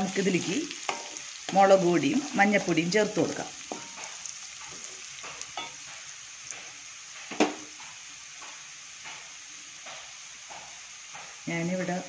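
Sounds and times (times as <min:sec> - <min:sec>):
food sizzling in a wok: 0:00.0 - 0:12.0
sharp knock against pan: 0:07.3 - 0:07.7.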